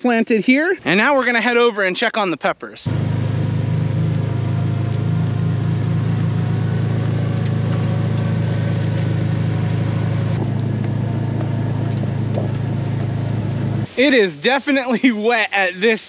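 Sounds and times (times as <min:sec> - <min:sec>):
utility vehicle engine running: 0:02.9 - 0:14.0.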